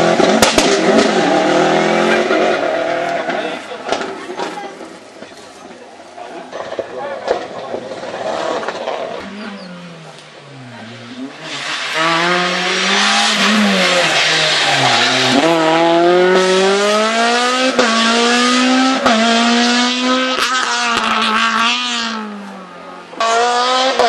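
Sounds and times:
car engine revving hard: 0.0s - 3.6s, 7.9s - 24.0s.

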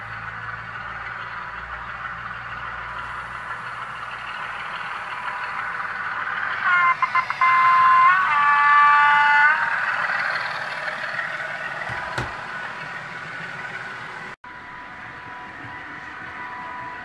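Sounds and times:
model locomotive engine sound: 0.0s - 17.0s
locomotive horn: 6.5s - 10.5s.

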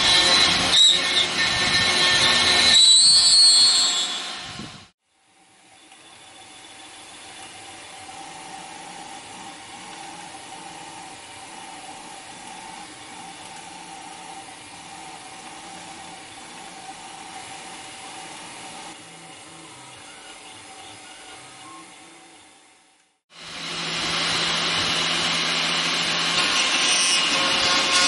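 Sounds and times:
printer whirring hum: 5.6s - 25.9s.

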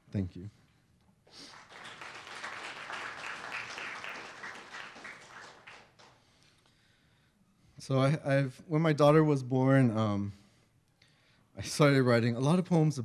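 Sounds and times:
audience applauding: 1.4s - 6.2s.

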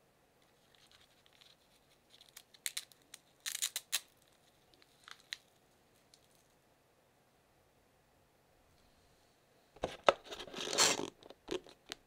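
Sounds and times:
velcro crackling rip: 10.4s - 11.1s.

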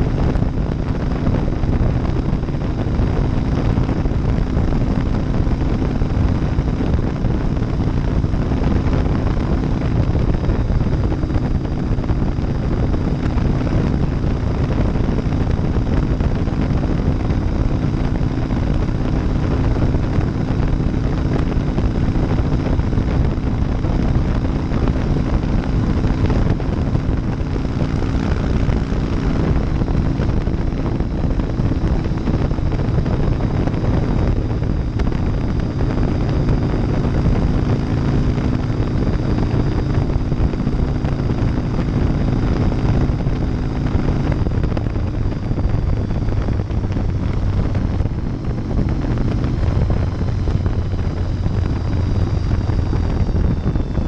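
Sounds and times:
motorcycle engine running: 0.0s - 54.0s
wind rush on microphone: 0.0s - 54.0s.

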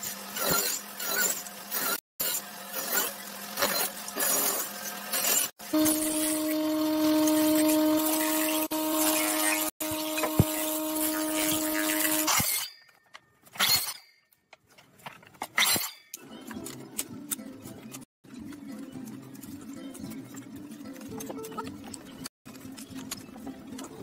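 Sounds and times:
short noisy tool strokes: 5.3s - 12.7s
power tool motor humming: 5.6s - 12.4s.

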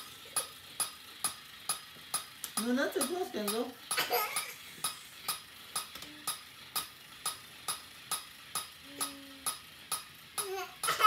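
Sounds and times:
mechanical ticking: 0.0s - 11.0s.

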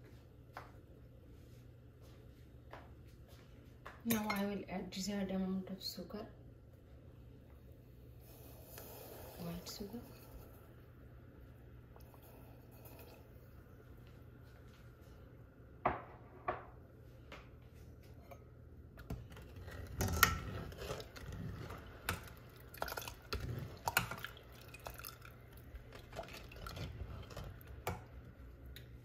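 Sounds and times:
metal ladle scraping a pot: 19.3s - 22.4s.

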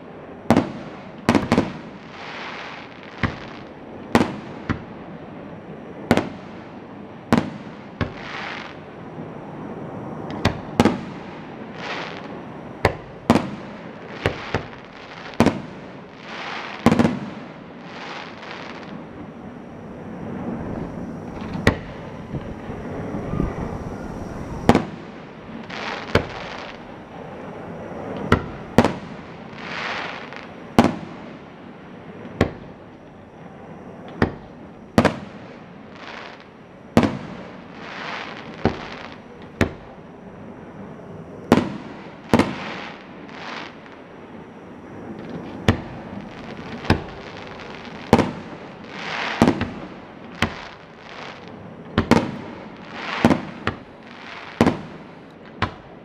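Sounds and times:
fireworks bangs: 0.0s - 40.1s, 40.7s - 56.0s
fireworks hissing: 0.5s - 3.7s, 7.3s - 8.8s, 9.4s - 31.3s, 33.9s - 39.8s, 41.1s - 44.0s, 45.0s - 55.8s.

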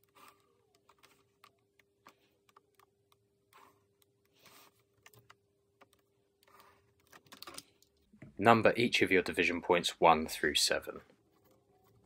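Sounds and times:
faint pencil scratches: 3.5s - 4.9s.

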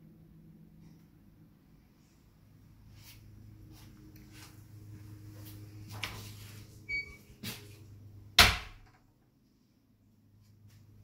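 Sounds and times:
steady low hum: 0.0s - 11.0s
door squeak: 6.9s - 7.3s
door banging: 8.4s - 9.0s.

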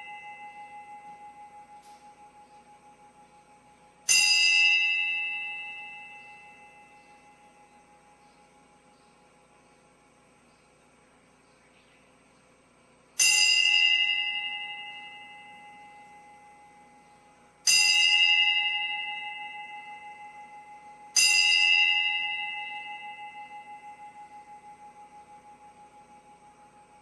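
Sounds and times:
bell ringing: 0.0s - 2.6s, 4.1s - 7.6s.

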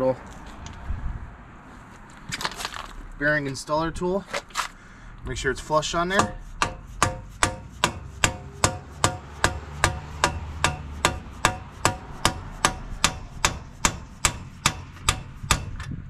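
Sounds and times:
hammer on metal tool: 6.1s - 15.9s.

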